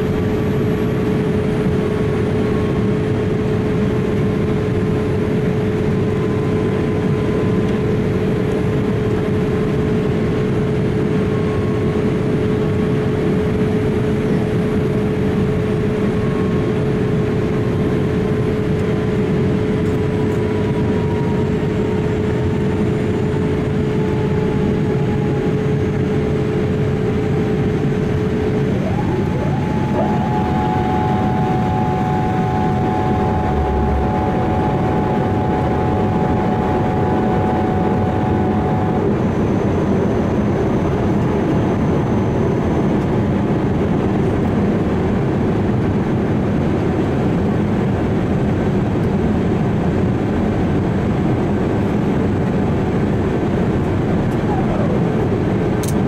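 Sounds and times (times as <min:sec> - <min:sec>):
faint steady whines: 0:00.0 - 0:56.0
airliner rushing noise: 0:19.2 - 0:44.2.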